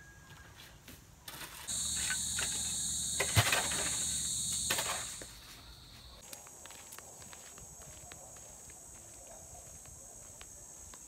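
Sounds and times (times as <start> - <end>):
high-pitched insect drone: 1.7 - 6.2.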